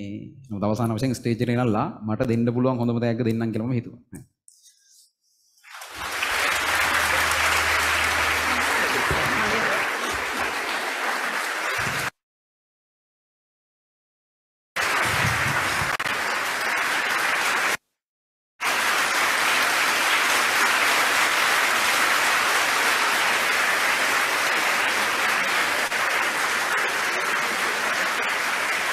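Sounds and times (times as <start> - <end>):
audience applauding: 5.7 - 12.2, 14.8 - 17.8, 18.6 - 28.9.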